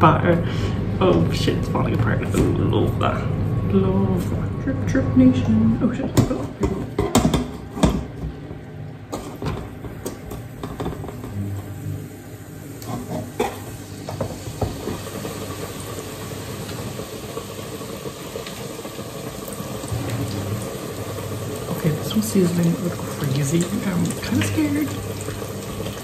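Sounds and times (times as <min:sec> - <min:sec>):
food sizzling in deep fryer: 0:09.0 - 0:26.0.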